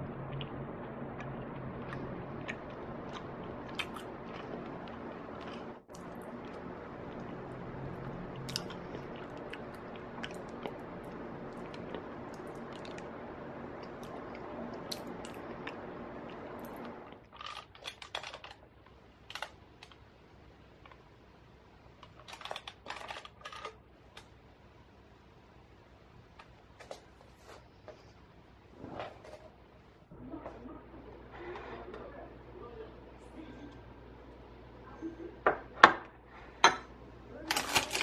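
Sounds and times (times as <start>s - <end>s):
chewing: 0.0s - 18.6s
steady hum: 0.0s - 22.1s, 27.7s - 38.0s.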